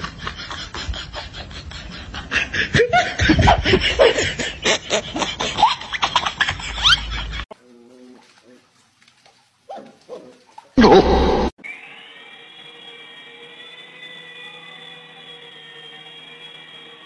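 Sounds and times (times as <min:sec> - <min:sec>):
people laughing: 0:00.0 - 0:07.5.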